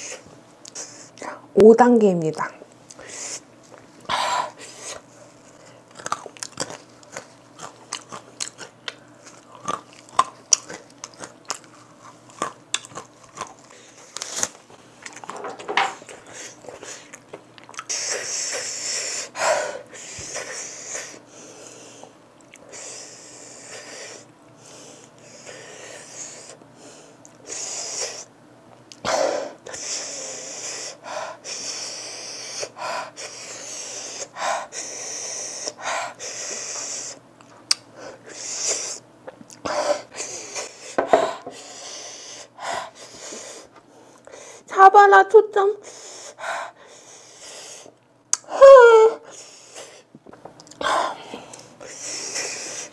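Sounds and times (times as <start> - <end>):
crunching and chewing peanut: 2.8 - 18.9, 19.8 - 27.6, 34.9 - 42.1, 49.5 - 52.9.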